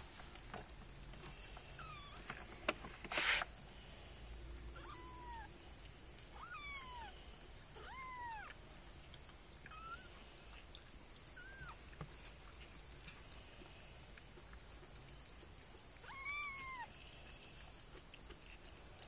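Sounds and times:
kitten mewing: 4.8s - 5.5s, 6.3s - 7.2s, 7.8s - 8.6s, 16.0s - 16.9s.

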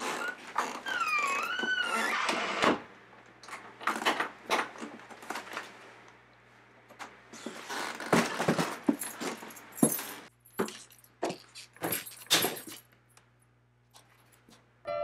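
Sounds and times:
rattling and rustling of clothing: 3.5s - 13.0s
footsteps on hard floor: 7.4s - 12.2s.

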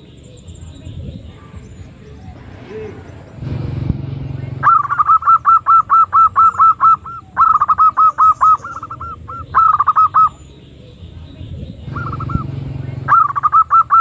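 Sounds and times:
dove hooked call notes: 0.0s - 14.0s
low rushing noise: 2.3s - 6.0s.

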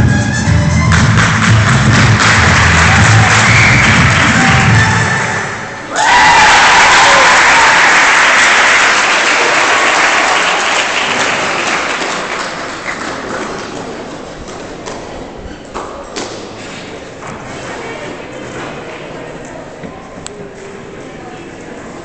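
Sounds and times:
audience applauding: 0.9s - 13.9s.

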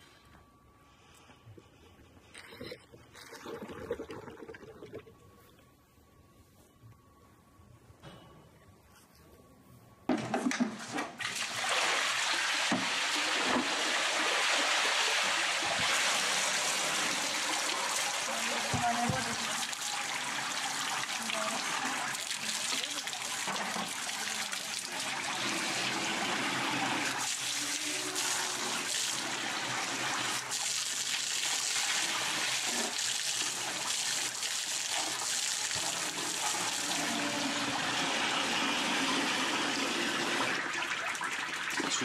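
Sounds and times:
plastic containers being rinsed: 10.4s - 38.4s
water running from tap: 11.5s - 42.0s.

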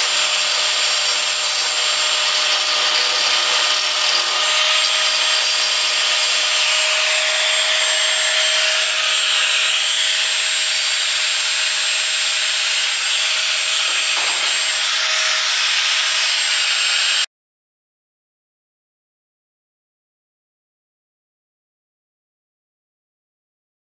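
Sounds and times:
angle grinder grinding steel: 0.0s - 17.3s.

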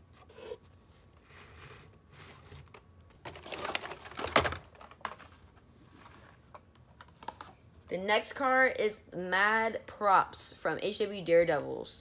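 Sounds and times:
plastic packaging rustling: 2.1s - 7.6s.

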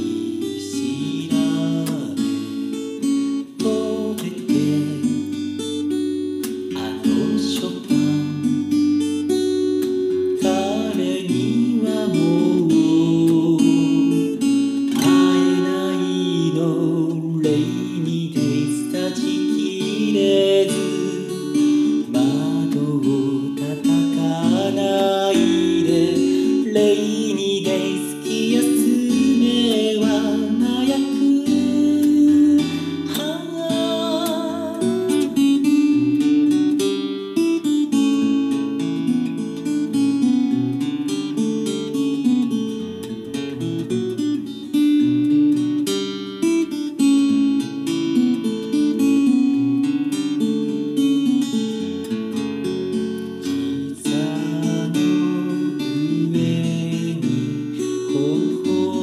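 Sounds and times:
person singing: 0.0s - 5.6s, 6.4s - 9.0s, 10.2s - 36.3s, 53.4s - 59.0s
acoustic guitar playing: 0.0s - 59.0s.

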